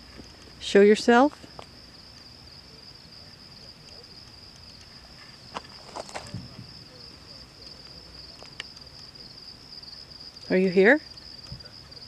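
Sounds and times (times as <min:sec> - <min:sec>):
night insects trilling: 0:00.0 - 0:12.0
footsteps on leaf litter: 0:05.6 - 0:06.4.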